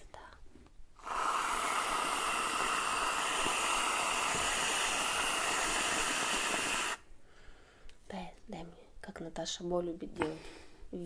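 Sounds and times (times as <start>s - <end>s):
aerosol can hissing: 1.0s - 7.0s.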